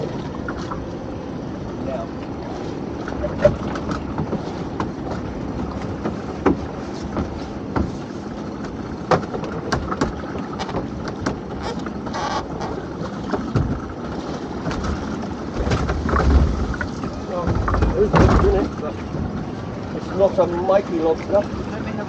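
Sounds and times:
water washing: 0:00.0 - 0:22.0
wind: 0:00.0 - 0:22.0
sharp knocks and clicks: 0:03.5 - 0:08.0, 0:08.6 - 0:13.8, 0:15.6 - 0:18.7.

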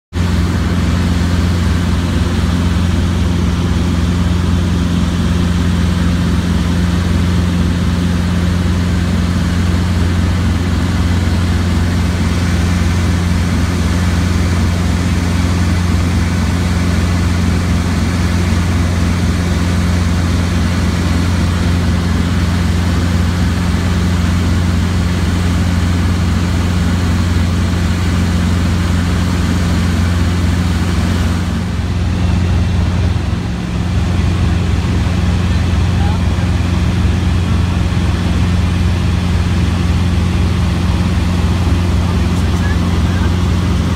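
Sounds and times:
helicopter engine and rotor drone: 0:00.1 - 0:43.9.

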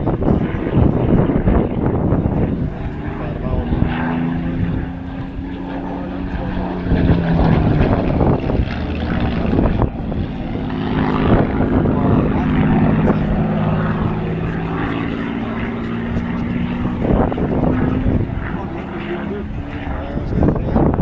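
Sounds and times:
propeller aircraft flying past: 0:00.0 - 0:21.0.

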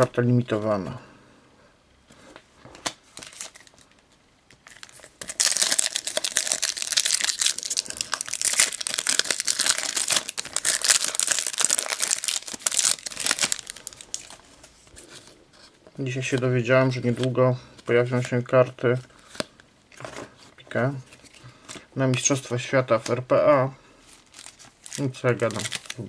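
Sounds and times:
foil packet crinkling: 0:03.1 - 0:15.0, 0:24.0 - 0:26.0.

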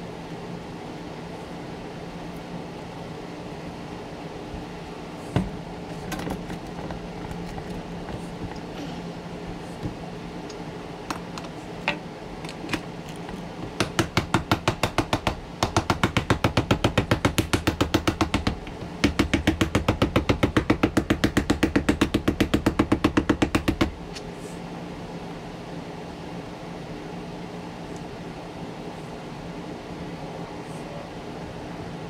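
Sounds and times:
hammer tapping on rubber sole: 0:13.6 - 0:24.0.

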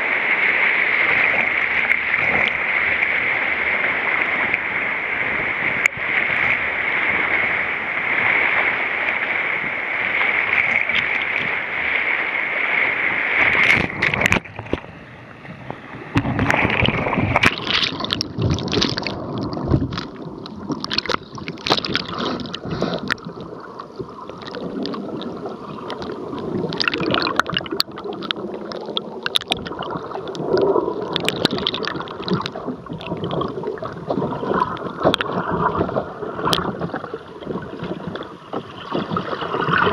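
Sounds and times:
underwater gurgling and bubbling: 0:00.0 - 0:11.8, 0:13.3 - 0:39.9
whitewater rapids rushing: 0:00.0 - 0:14.3.

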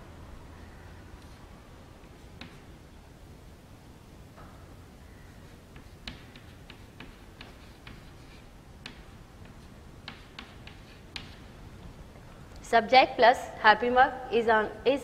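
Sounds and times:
chalk tapping on chalkboard: 0:02.0 - 0:02.8, 0:05.3 - 0:11.6
chalk scraping: 0:05.3 - 0:11.5.

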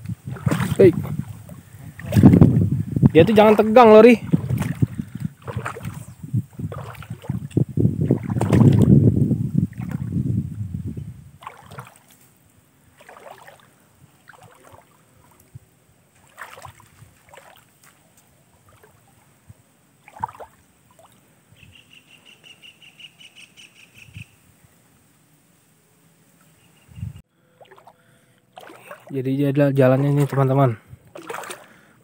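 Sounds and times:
wading splashes in water: 0:00.0 - 0:10.2, 0:11.3 - 0:21.3, 0:27.5 - 0:32.0
wind on microphone: 0:00.0 - 0:12.1, 0:16.6 - 0:17.3, 0:26.8 - 0:27.2, 0:30.2 - 0:31.4.

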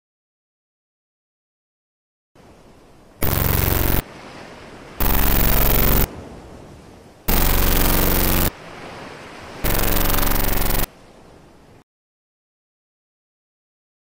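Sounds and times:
low hiss: 0:02.4 - 0:11.8
buzzing glitch blasts: 0:03.2 - 0:04.0, 0:05.0 - 0:06.1, 0:07.3 - 0:08.5, 0:09.6 - 0:10.9.

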